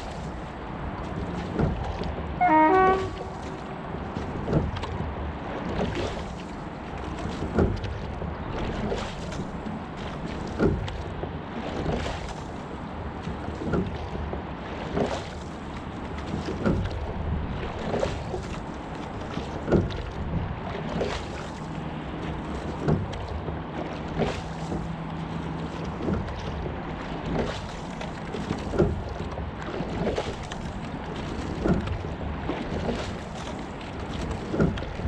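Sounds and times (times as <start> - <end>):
water running along hull: 0.0 - 35.0.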